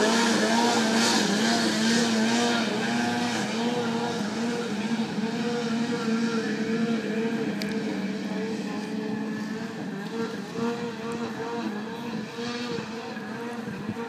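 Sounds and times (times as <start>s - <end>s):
snowmobile engine at high revs: 0.0s - 14.0s.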